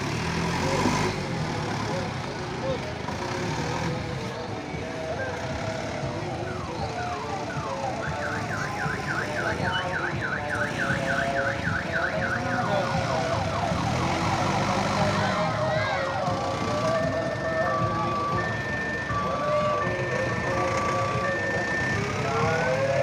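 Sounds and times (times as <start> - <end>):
electronic siren warbling: 6.3 - 16.2.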